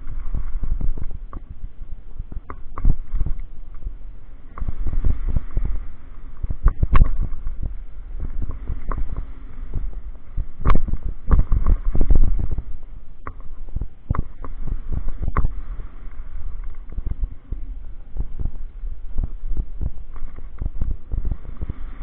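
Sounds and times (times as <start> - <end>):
wind and tyre rumble: 0.0 - 22.0.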